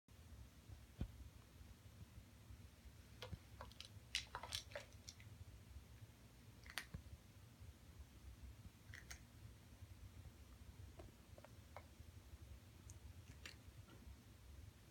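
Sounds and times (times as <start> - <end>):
cat crunching dry treats: 3.2 - 5.3.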